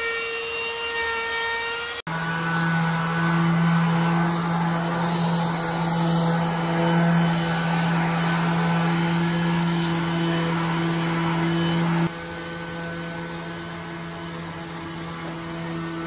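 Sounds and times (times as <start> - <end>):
orbital sander humming: 0.0 - 16.0.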